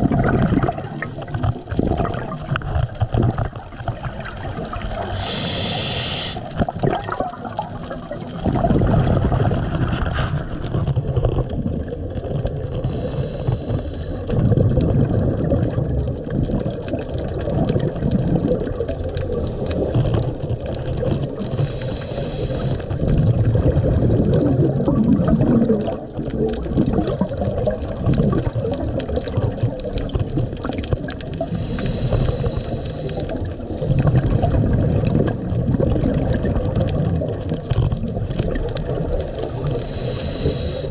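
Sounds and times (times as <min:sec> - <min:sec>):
low rumble of moving water: 0:00.0 - 0:40.9.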